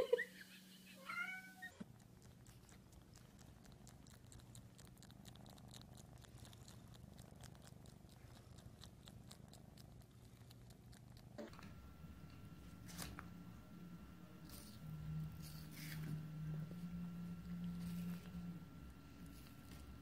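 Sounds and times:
cat purring: 1.4s - 20.0s
cat licking lips clicks: 1.8s - 11.4s.

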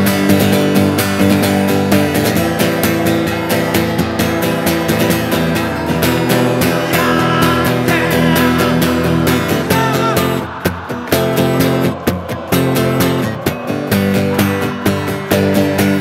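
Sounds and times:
acoustic guitar strummed: 0.0s - 16.0s
man singing into microphone: 6.2s - 12.0s.

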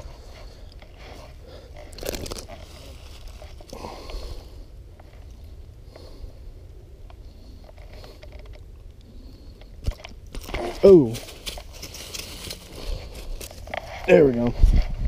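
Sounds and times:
dry grass rustling and crunching: 0.0s - 5.5s, 9.8s - 15.0s.

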